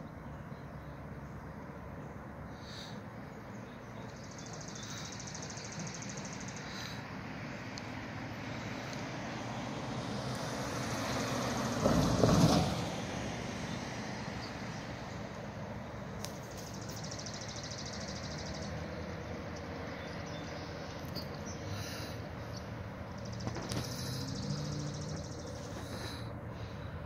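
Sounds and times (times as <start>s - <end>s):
outdoor rumble: 0.8s - 27.0s
vehicle passing close by: 5.6s - 16.2s, 16.8s - 27.0s.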